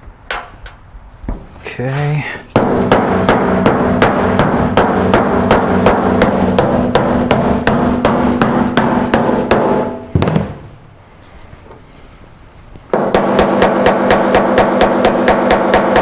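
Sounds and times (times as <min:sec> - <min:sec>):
rubber mallet tapping sheet metal: 0:02.5 - 0:10.6, 0:12.9 - 0:16.0.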